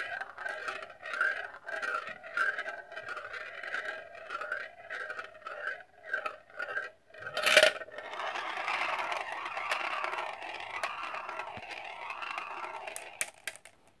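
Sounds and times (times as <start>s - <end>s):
marble rolling in plastic funnel: 0.0s - 14.0s
marble dropping with a clack: 9.1s - 14.0s.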